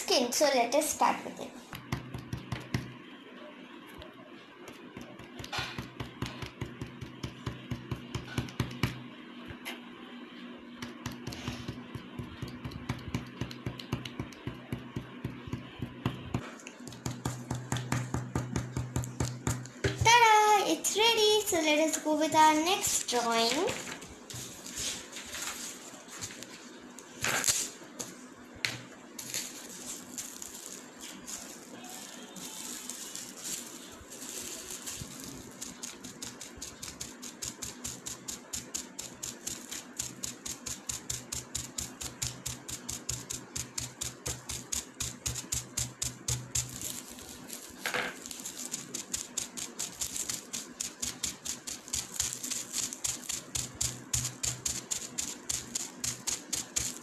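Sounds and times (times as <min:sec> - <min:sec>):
bubble wrap tapping on paper: 0:01.7 - 0:03.0, 0:04.7 - 0:09.0, 0:10.8 - 0:20.1, 0:29.2 - 0:57.0.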